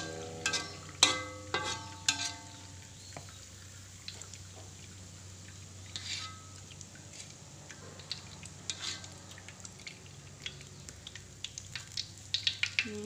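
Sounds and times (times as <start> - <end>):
hot oil crackling and popping: 0.0 - 13.0.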